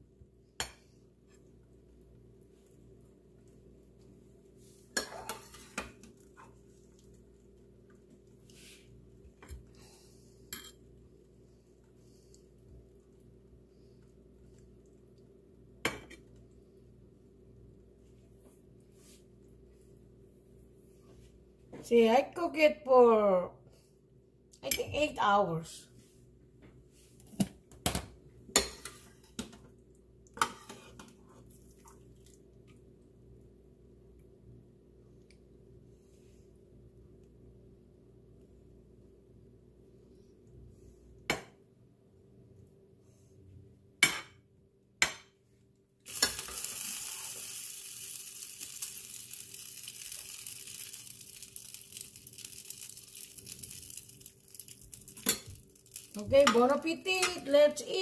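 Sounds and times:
faint steady hum: 0.0s - 58.0s
steady hiss: 46.1s - 56.2s.

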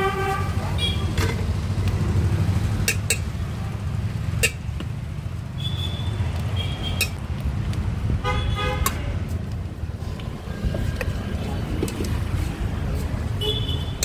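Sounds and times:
vehicle horns tooting: 0.0s - 1.2s, 5.6s - 7.2s, 8.2s - 9.0s, 13.3s - 14.0s
traffic engine rumble: 0.0s - 14.0s.

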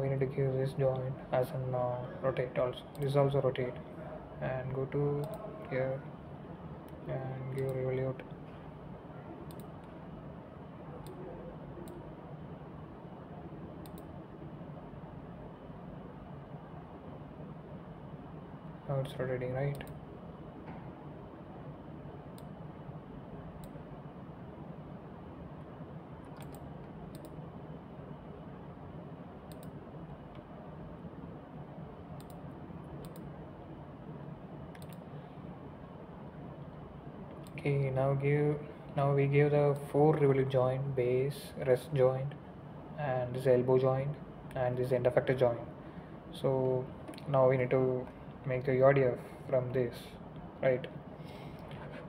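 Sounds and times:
low room hum: 0.0s - 52.0s
computer mouse clicking: 9.5s - 10.0s, 13.8s - 14.1s, 19.7s - 20.0s, 26.2s - 27.4s, 29.5s - 30.4s, 32.2s - 33.3s, 34.7s - 35.0s.

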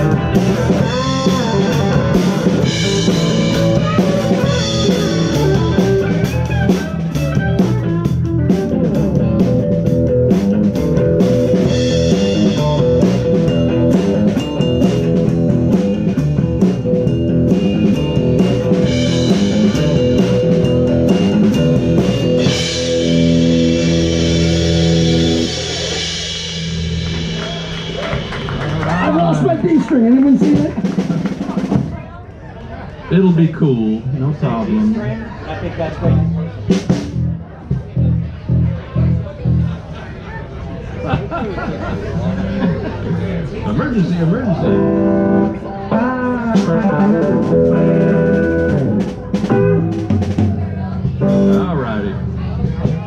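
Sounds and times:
electric guitar: 0.0s - 31.8s, 43.9s - 53.0s
drum kit: 0.0s - 32.1s, 36.0s - 39.8s, 43.8s - 53.0s
bass guitar: 0.0s - 32.2s, 32.9s - 53.0s.

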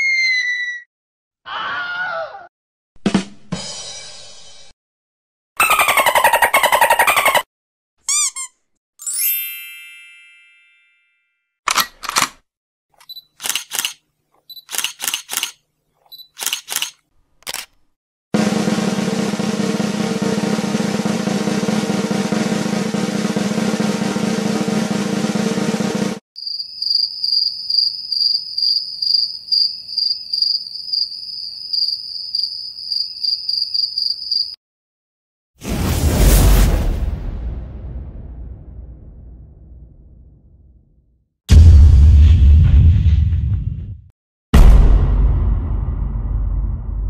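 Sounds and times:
gun being reloaded: 11.7s - 12.4s, 13.0s - 14.0s, 14.6s - 15.6s, 16.3s - 17.9s
drum roll: 18.4s - 26.2s
crickets chirping: 26.4s - 34.6s.

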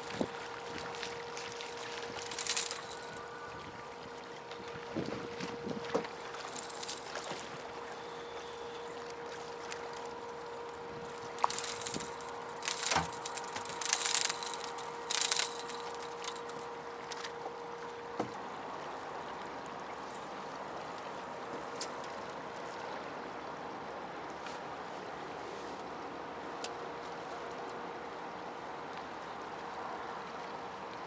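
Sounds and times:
steady hum: 0.0s - 20.8s
water noise: 0.0s - 31.0s
fish splashing at water surface: 1.6s - 3.3s.

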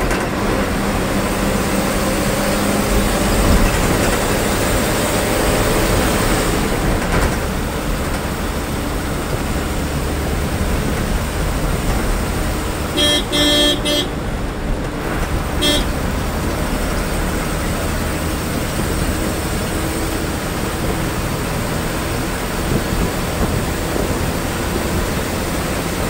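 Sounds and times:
bus diesel engine running: 0.0s - 26.0s
road and rattle noise: 0.0s - 26.0s
horn honking: 12.8s - 14.5s, 15.4s - 16.4s.

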